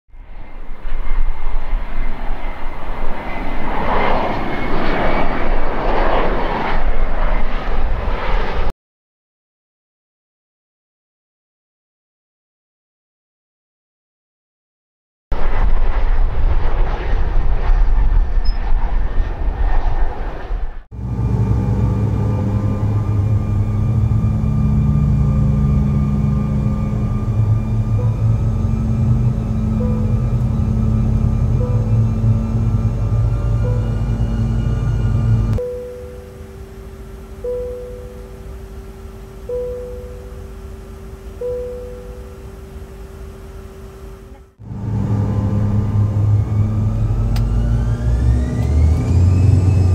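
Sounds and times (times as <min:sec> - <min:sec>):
jet engines roaring: 0:00.2 - 0:08.7, 0:15.3 - 0:49.9
faint whining tones: 0:20.5 - 0:49.9.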